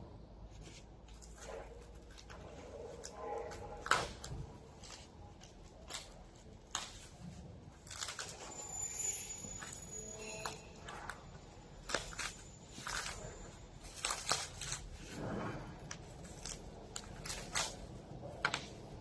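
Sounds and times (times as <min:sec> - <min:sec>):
plastic film crinkling: 0:00.5 - 0:19.0
scissors snipping plastic film: 0:15.9 - 0:19.0.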